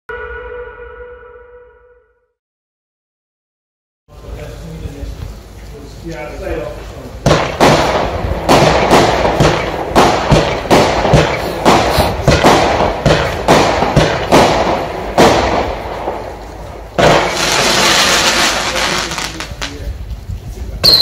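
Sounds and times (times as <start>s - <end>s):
firework shots thumping: 7.2s - 19.9s.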